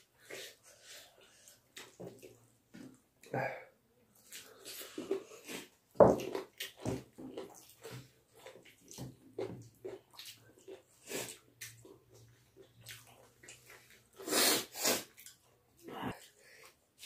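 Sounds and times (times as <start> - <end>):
wet chewing: 4.1 - 15.5.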